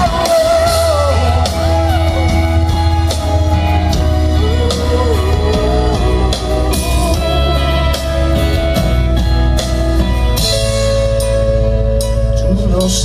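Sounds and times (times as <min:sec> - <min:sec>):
live rock band playing: 0:00.0 - 0:13.0.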